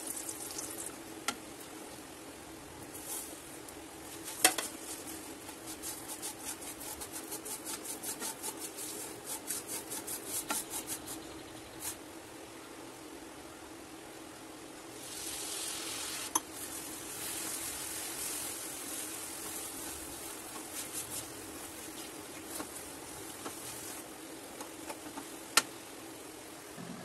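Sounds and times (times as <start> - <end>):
milk sizzling in hot pan: 0.0 - 2.2, 2.8 - 10.7, 14.9 - 24.2
spatula scraping ticks: 4.2 - 11.0
steady low hum: 18.2 - 27.0.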